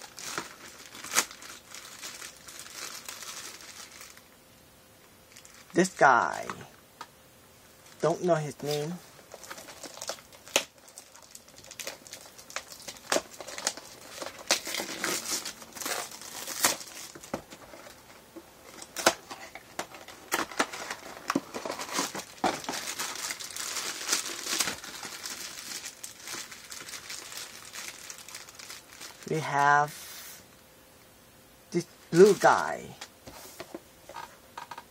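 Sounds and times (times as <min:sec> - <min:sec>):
foil bag crinkling and tearing: 0:00.0 - 0:04.3, 0:05.3 - 0:06.4, 0:08.6 - 0:29.6.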